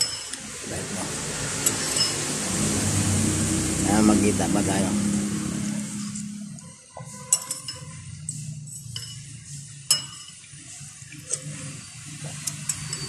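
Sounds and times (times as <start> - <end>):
metal spoon scraping a bowl: 5.9 - 13.0.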